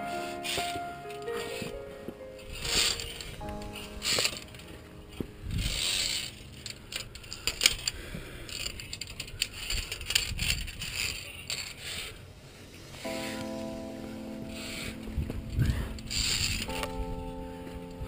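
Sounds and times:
soft background music: 0.0s - 9.1s, 12.2s - 18.0s
rustling: 0.0s - 18.0s
carabiners clicking on steel cable: 5.8s - 12.0s.

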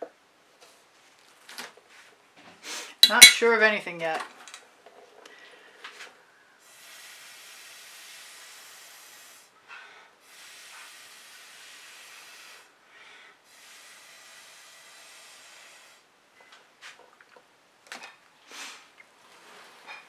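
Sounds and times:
air blowing hiss: 6.6s - 9.6s, 10.2s - 16.1s, 18.5s - 18.9s.

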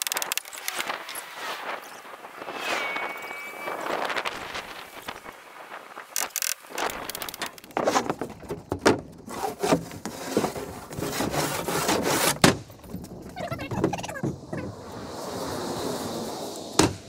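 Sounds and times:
sharp wooden knocks: 6.2s - 9.9s
wooden panels scraping: 6.2s - 17.0s.

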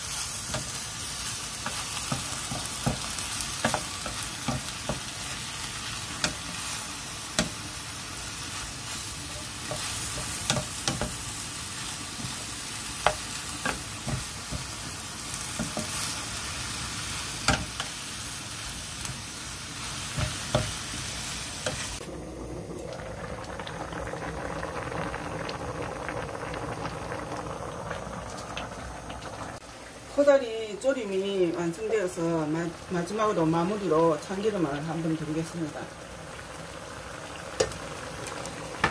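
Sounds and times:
food sizzling in a frying pan: 0.0s - 38.9s
pot simmering and bubbling: 0.0s - 38.9s.

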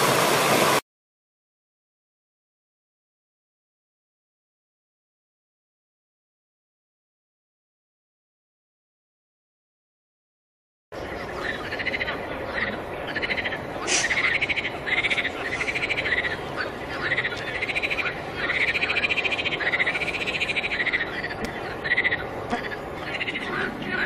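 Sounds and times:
chorus of pulsed animal calls: 11.0s - 24.0s
steady hiss: 13.6s - 20.4s.

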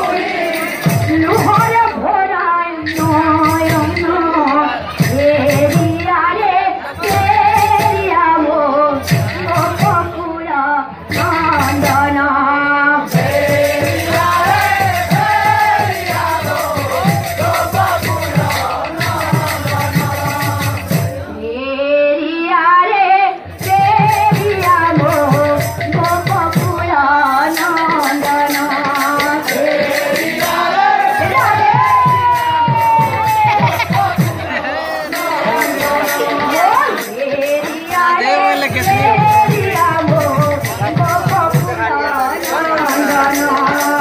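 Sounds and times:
steady drumbeat: 0.0s - 10.2s, 11.0s - 12.4s, 13.0s - 21.3s, 23.5s - 44.0s
jingling percussion: 0.0s - 21.3s, 23.4s - 44.0s
women singing devotional song: 0.0s - 44.0s.

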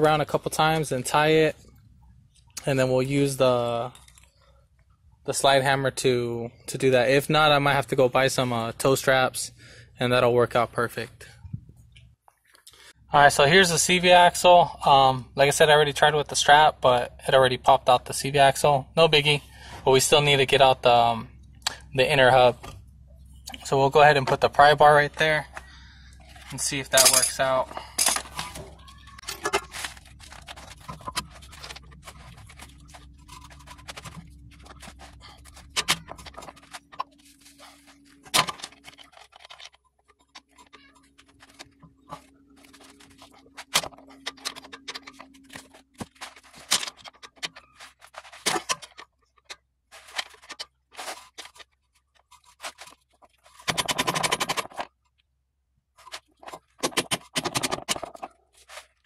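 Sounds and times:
pry bar clicking and scraping metal: 53.6s - 54.9s.

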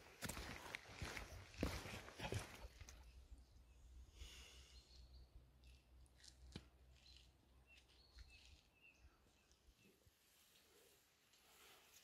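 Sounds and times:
bird chirps: 4.6s - 5.8s, 6.9s - 10.0s.

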